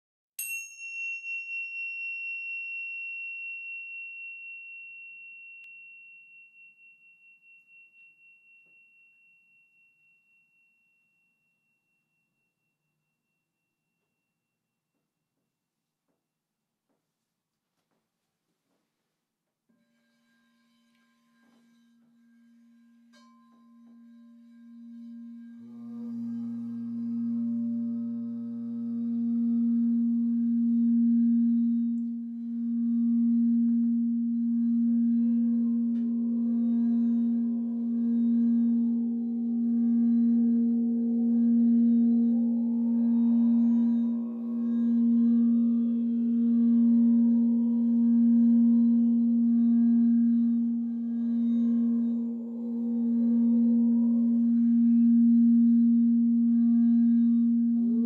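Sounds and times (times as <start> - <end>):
high clear chime ringing: 0.4 - 14.3
singing bowl tone: 0.4 - 14.8, 19.7 - 58.0.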